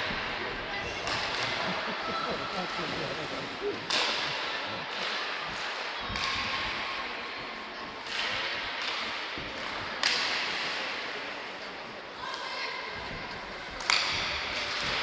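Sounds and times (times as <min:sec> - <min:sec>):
stick and puck clacks: 0:00.0 - 0:02.2, 0:03.6 - 0:11.7, 0:13.1 - 0:15.0
sharp hit echoing in rink: 0:03.8 - 0:06.9, 0:08.0 - 0:11.1, 0:13.8 - 0:15.0.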